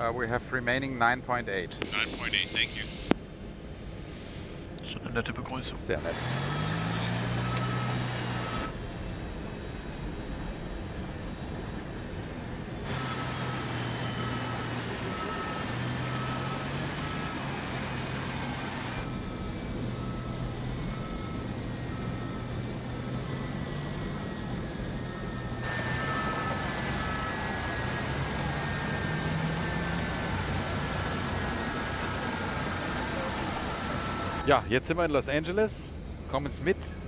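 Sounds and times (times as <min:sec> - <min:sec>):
jet engines winding down: 0:01.8 - 0:03.1, 0:05.5 - 0:37.0
vehicle reversing beeper: 0:01.8 - 0:03.1, 0:06.0 - 0:08.8, 0:12.8 - 0:34.8.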